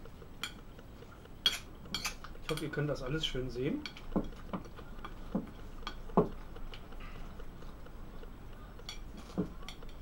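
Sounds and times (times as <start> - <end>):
fork clinking glass bowl: 1.4 - 2.7.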